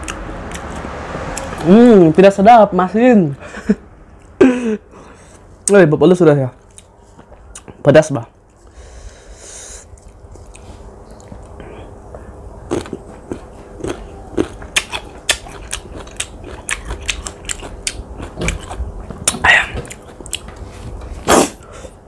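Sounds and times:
crunchy fruit being chewed: 0.0 - 1.7, 9.8 - 21.7.

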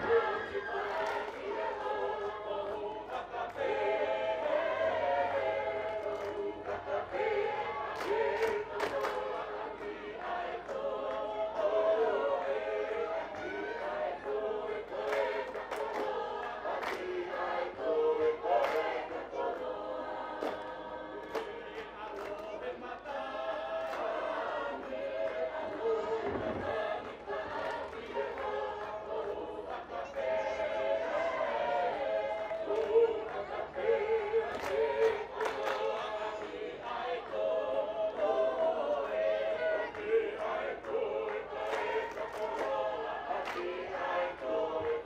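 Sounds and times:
mixed choir singing in harmony: 0.0 - 45.0.

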